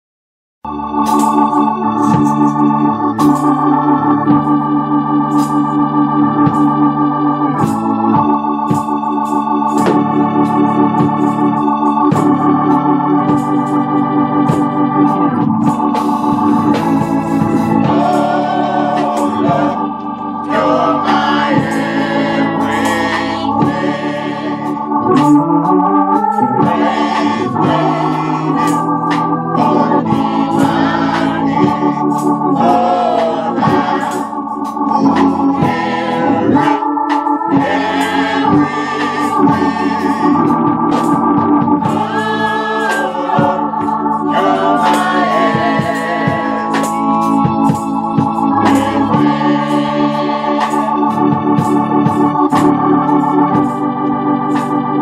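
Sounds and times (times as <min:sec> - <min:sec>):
organ playing gospel chords: 0:00.6 - 0:55.0
sharp percussive hits: 0:01.0 - 0:02.6
small choir singing: 0:15.2 - 0:25.5, 0:26.2 - 0:53.7.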